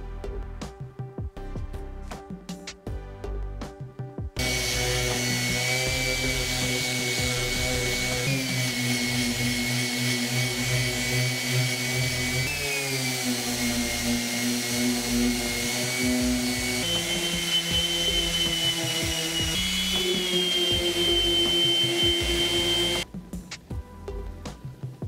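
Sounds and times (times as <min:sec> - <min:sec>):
orbital sander running: 0:04.4 - 0:23.0.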